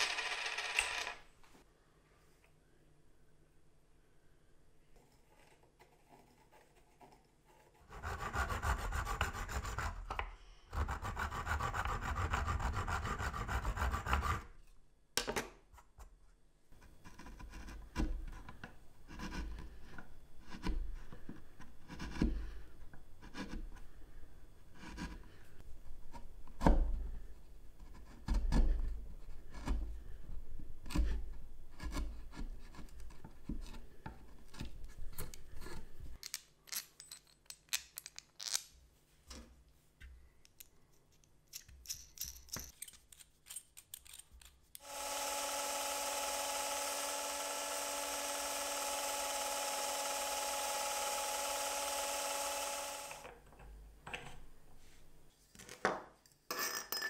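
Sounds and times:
carving tool scraping wood: 0:05.2 - 0:14.6, 0:16.8 - 0:24.0, 0:24.7 - 0:26.3, 0:27.2 - 0:30.2, 0:30.8 - 0:34.8.

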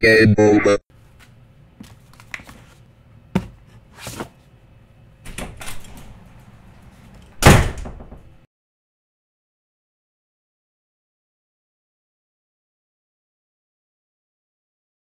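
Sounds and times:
door slamming shut: 0:07.4 - 0:08.3.

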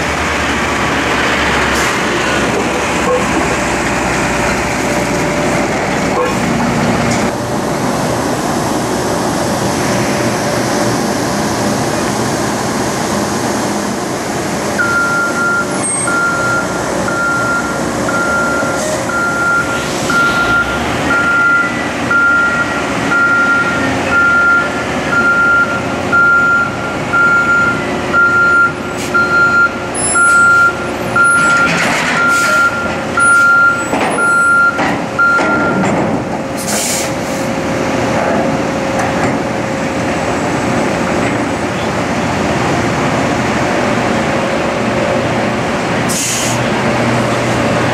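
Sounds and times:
heavy machinery drone: 0:00.0 - 0:47.9
electronic warning beeper: 0:14.8 - 0:35.8.

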